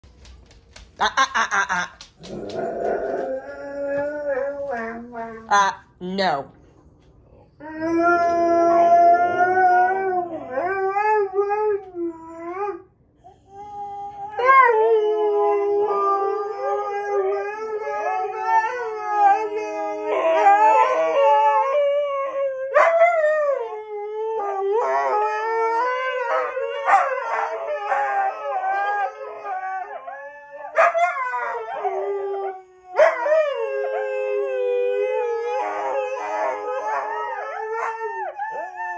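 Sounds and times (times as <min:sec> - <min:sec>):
huskies howling: 0:14.4 - 0:38.9.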